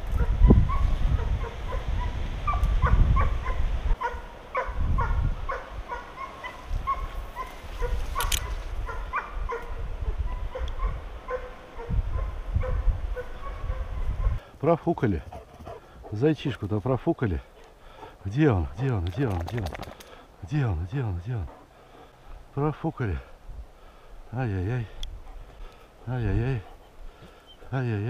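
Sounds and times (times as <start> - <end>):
wind rumble on microphone: 0.0 - 14.5
hound baying yelps: 0.1 - 14.4.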